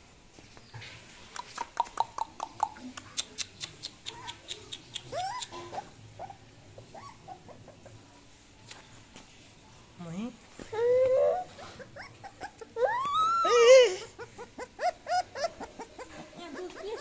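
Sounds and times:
puppy whimpering: 4.1 - 8.0, 10.7 - 17.0.

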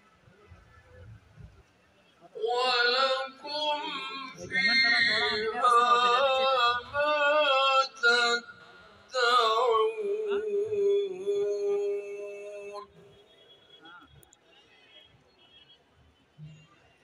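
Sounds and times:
man singing: 2.4 - 13.0.

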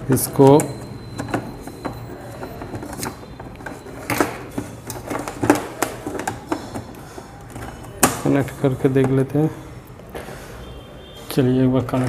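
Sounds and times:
circuit board and cables clattering: 0.0 - 9.5.

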